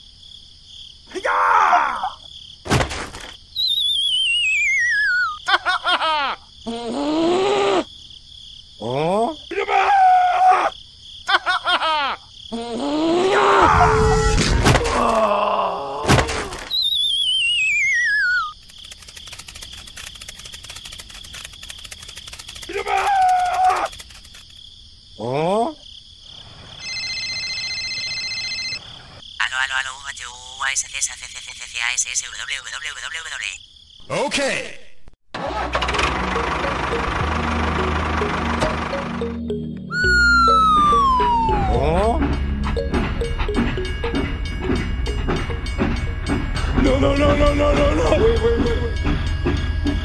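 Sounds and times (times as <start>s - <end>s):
descending warbling whistle: 3.6s - 5.4s, 16.7s - 18.6s, 39.8s - 42.2s
electronic phone ring: 26.8s - 28.9s
quick rising whoop: 39.9s - 41.8s
squeaky cartoon voice: 39.9s - 41.9s.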